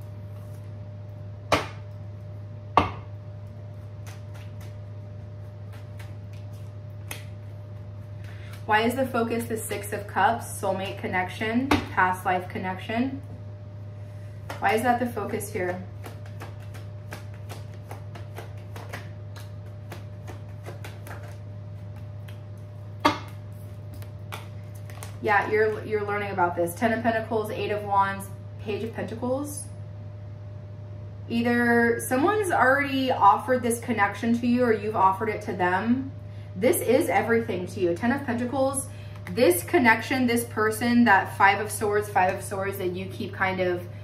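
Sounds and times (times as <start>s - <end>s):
cards shuffled by hand: 5.4s - 8.7s, 16.0s - 25.8s.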